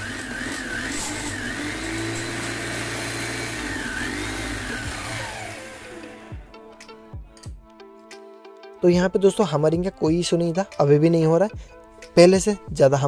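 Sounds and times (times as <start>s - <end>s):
demolition breaker motor whine: 0.0s - 6.5s.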